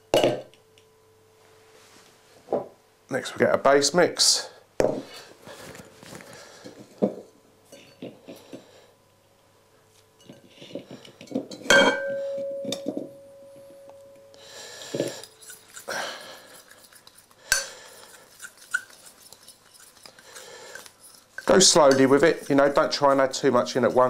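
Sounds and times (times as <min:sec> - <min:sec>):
glass bowl ringing: 0:11.6 - 0:14.4
utensil scraping glass bowl: 0:14.8 - 0:24.0.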